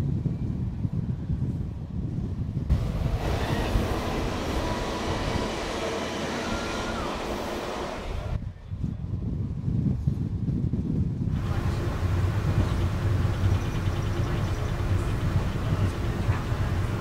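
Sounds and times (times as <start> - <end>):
wind buffeting microphone: 0.0 - 17.0
train wheels roaring in tunnel: 2.7 - 8.6, 11.3 - 17.0.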